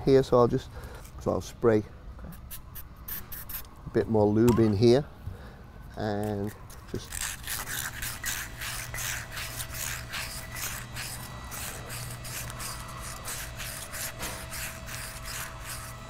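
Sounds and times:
abrasive cloth rubbing metal: 7.1 - 16.0.

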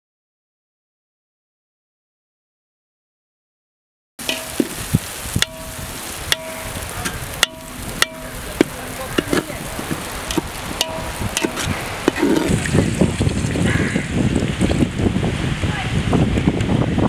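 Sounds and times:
food sizzling in oil: 4.2 - 13.8
metal ladle scraping a pot: 7.4 - 12.8.

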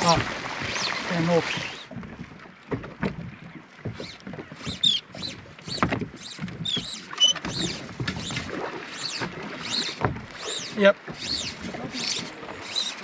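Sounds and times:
seabirds squeaky calls: 4.0 - 13.0.

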